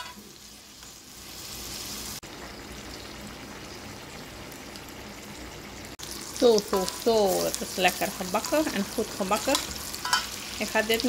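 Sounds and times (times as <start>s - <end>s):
fish sizzling in a wok: 0.0s - 11.0s.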